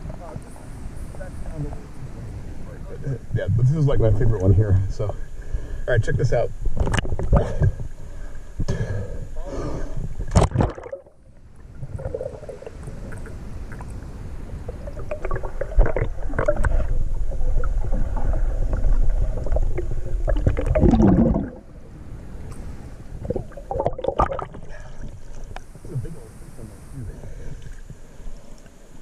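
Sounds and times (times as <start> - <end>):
muffled underwater river rumble: 0.0 - 29.0
underwater knocks and clicks: 6.7 - 7.9, 14.9 - 21.6, 23.2 - 24.6.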